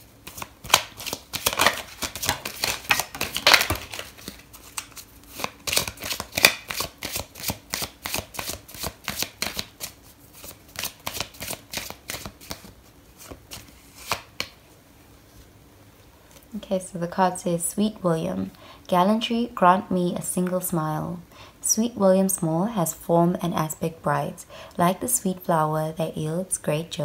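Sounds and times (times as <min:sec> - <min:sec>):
cards being shuffled by hand: 0:00.2 - 0:14.6.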